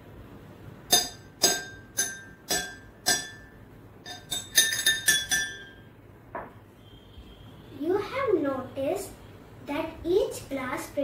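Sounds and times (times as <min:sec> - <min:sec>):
spoon clinking glasses: 0:00.9 - 0:05.8.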